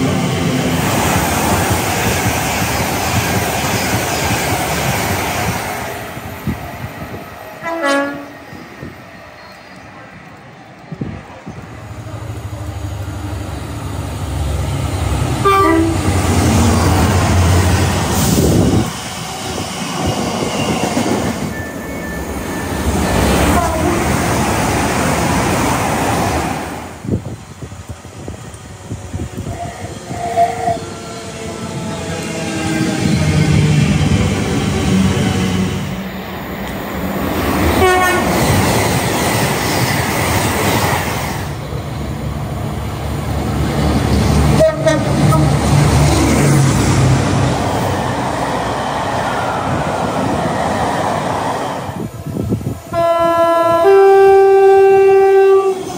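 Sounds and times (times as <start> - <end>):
train rumble and wheel clatter: 0.0 - 55.9
train horn: 7.6 - 8.6, 15.4 - 16.2, 23.4 - 24.2, 37.8 - 38.5, 44.5 - 45.6, 52.9 - 55.9.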